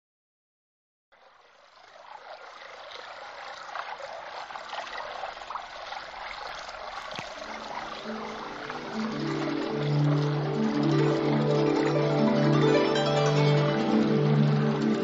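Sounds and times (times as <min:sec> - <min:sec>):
water trickling: 0:01.1 - 0:15.0
soft sustained music notes: 0:07.3 - 0:15.0.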